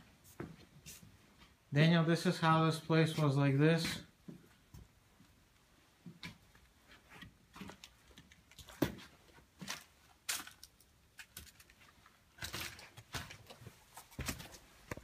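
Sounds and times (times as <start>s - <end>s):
footsteps on debris: 7.5s - 15.0s.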